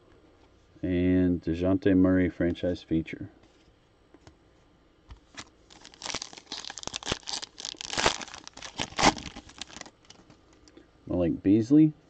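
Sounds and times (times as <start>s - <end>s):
foil wrapper crinkling: 5.4s - 10.2s.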